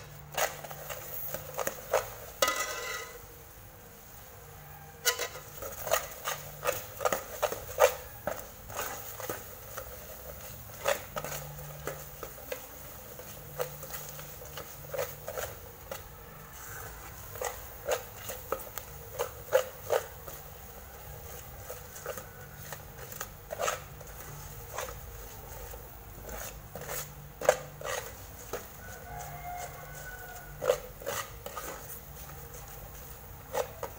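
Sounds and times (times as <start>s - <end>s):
metal spatula scraping pot: 0.0s - 3.4s, 4.8s - 33.9s.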